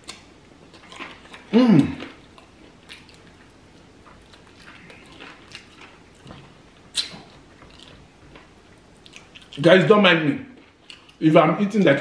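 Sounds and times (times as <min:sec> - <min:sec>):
man chewing with wet smacks: 0:00.0 - 0:09.6, 0:10.5 - 0:11.2.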